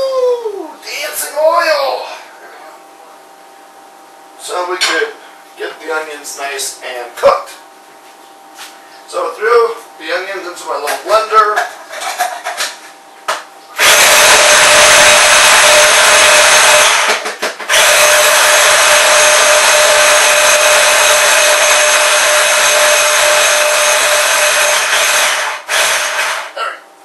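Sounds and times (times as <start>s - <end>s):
electric blender motor whining: 13.8s - 26.6s.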